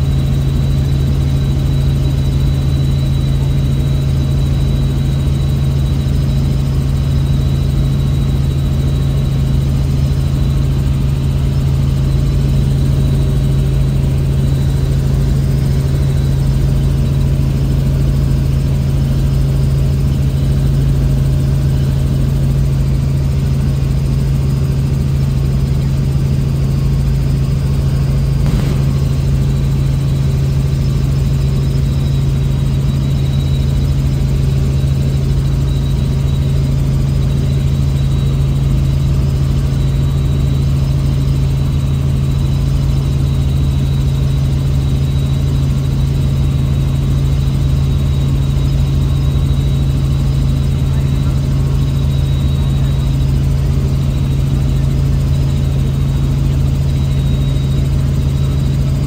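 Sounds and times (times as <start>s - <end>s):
helicopter engine and rotor drone: 0.0s - 59.0s
faint high whine: 23.2s - 34.1s, 48.2s - 59.0s.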